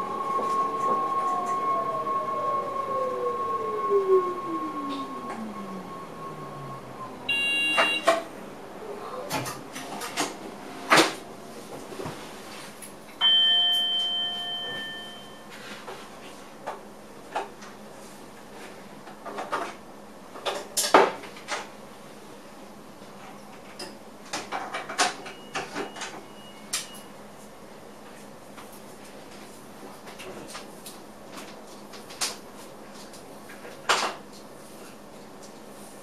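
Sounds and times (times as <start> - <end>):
chime ringing: 13.2 - 15.5.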